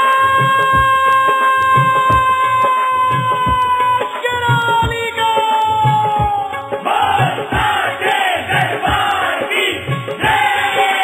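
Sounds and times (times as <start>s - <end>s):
hand drum beat: 8.5s - 10.6s.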